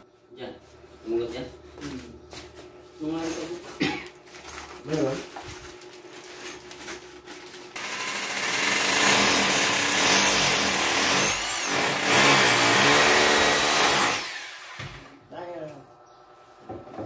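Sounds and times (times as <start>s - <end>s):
rotary hammer drilling into tile: 7.8s - 14.9s.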